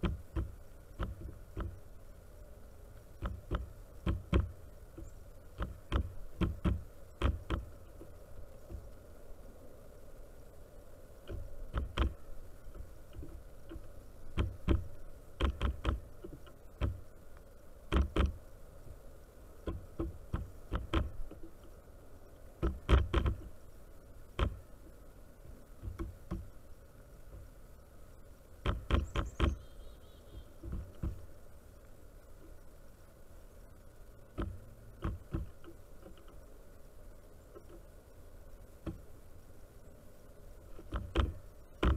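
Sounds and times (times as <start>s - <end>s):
woodpecker pecking on wood: 0.0s - 1.9s, 2.9s - 9.0s, 11.2s - 17.2s, 17.8s - 18.5s, 19.5s - 25.0s, 25.7s - 27.6s, 28.6s - 31.4s, 34.2s - 36.5s, 37.5s - 38.0s, 40.6s - 41.9s.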